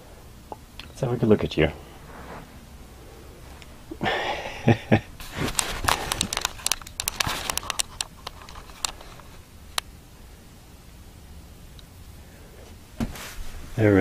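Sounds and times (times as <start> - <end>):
handling rustle: 5.2 - 9.4
sharp clicks and crackles: 5.2 - 9.9.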